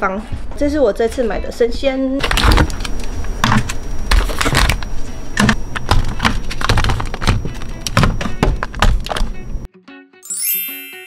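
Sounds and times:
plastic tubs being stacked: 0:05.4 - 0:09.4.

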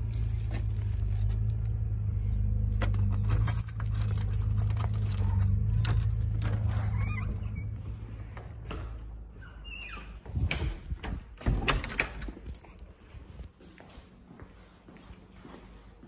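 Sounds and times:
keys jangling: 0:00.0 - 0:07.6, 0:11.8 - 0:14.2.

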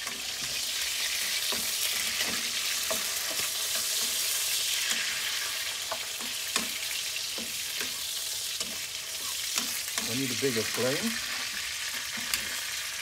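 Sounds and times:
chicken sizzling in butter: 0:00.0 - 0:13.0
spatula scraping and tapping pan: 0:01.2 - 0:05.2, 0:05.8 - 0:10.3.

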